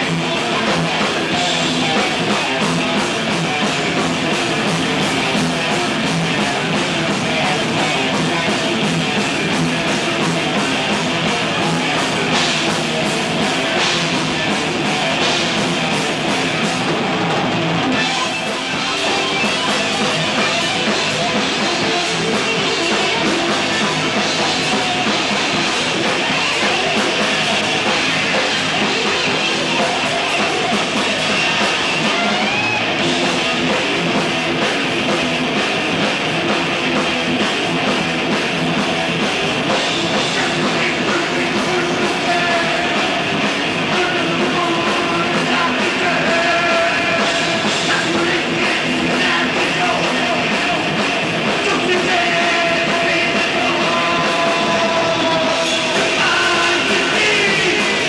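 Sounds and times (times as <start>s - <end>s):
metal band playing live: 0.0s - 58.0s.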